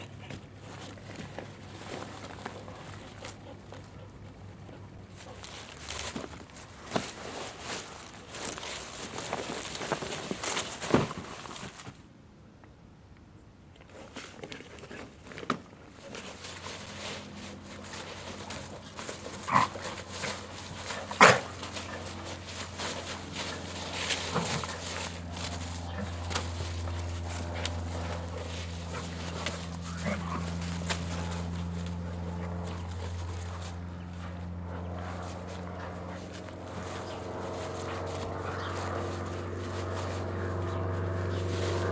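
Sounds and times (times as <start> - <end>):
paws rustling through leaves: 0.0 - 12.1, 13.9 - 41.9
steady low hum: 0.0 - 41.9
dog barks: 21.1 - 21.5.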